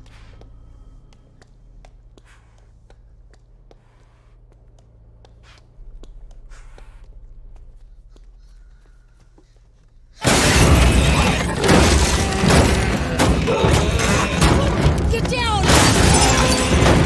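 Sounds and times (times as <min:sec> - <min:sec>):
low steady rumble: 0:00.0 - 0:10.2
loud crash of deer hitting car: 0:10.2 - 0:17.0.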